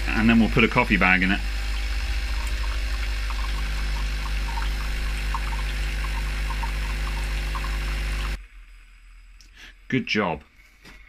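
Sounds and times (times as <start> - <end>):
coffee machine pump buzzing: 0.0 - 8.4
water trickling: 0.2 - 8.4.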